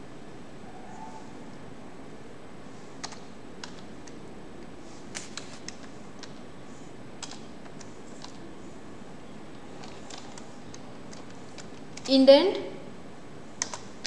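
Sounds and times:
low background hum: 0:00.0 - 0:14.0
keyboard keystrokes: 0:07.2 - 0:08.4, 0:09.8 - 0:12.2, 0:13.6 - 0:13.9.

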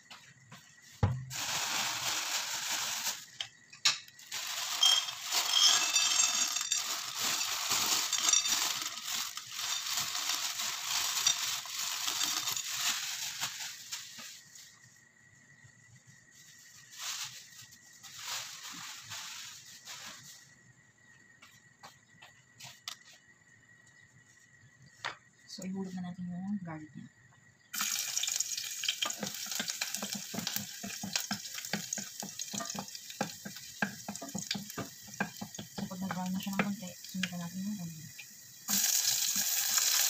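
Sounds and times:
oil sizzling in a saucepan: 0:00.0 - 0:14.8, 0:16.4 - 0:20.4, 0:27.7 - 0:40.0.

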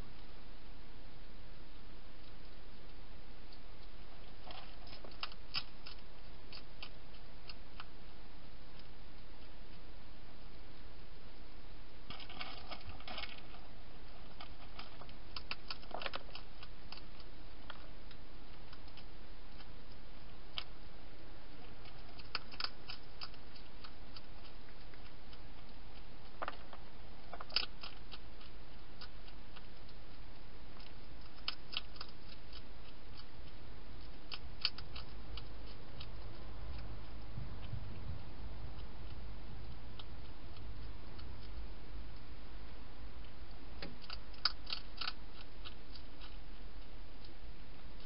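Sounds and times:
hedgehog crunching dry food: 0:01.6 - 0:48.0.

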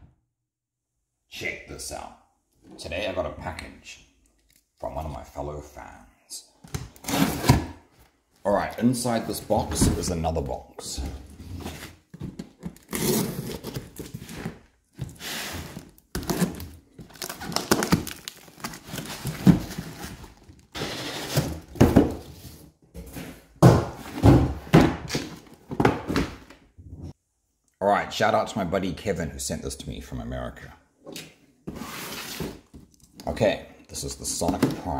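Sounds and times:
cardboard boxes rustling and scraping: 0:07.0 - 0:07.8, 0:11.0 - 0:17.6, 0:18.6 - 0:26.4, 0:31.6 - 0:32.9.

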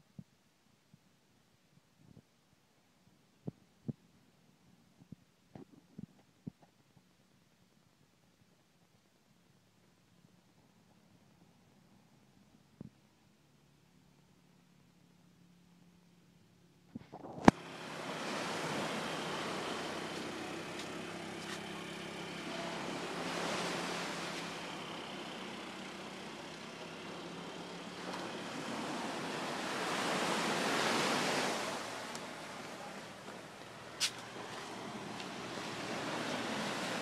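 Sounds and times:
waves washing onto beach: 0:17.1 - 0:37.0.

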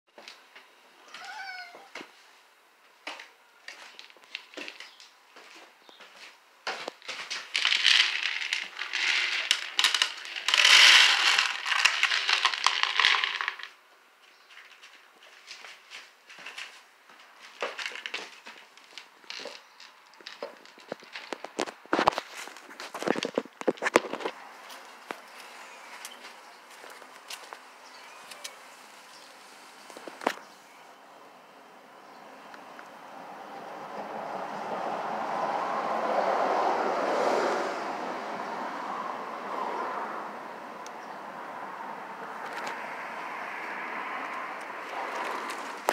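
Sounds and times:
cat crunching dry kibble: 0:06.9 - 0:13.7, 0:17.5 - 0:29.1, 0:44.2 - 0:45.9
passing vehicle rushing: 0:32.9 - 0:45.9.

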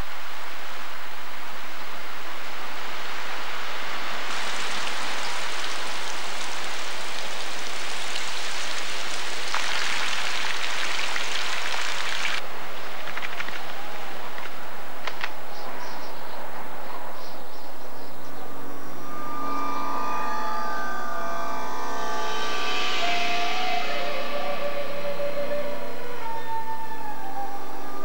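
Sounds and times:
heavy rain hissing: 0:00.0 - 0:13.0, 0:21.4 - 0:28.0
rainwater running over rock: 0:04.2 - 0:12.4.

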